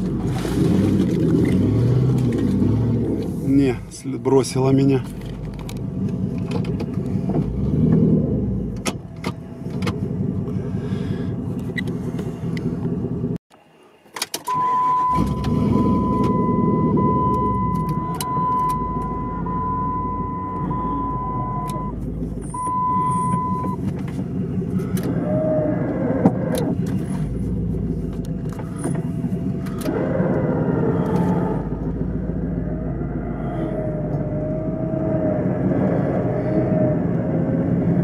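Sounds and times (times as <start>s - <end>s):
vehicle engine running: 0.0s - 13.4s, 15.2s - 38.0s
electronic warning beep: 14.5s - 23.8s.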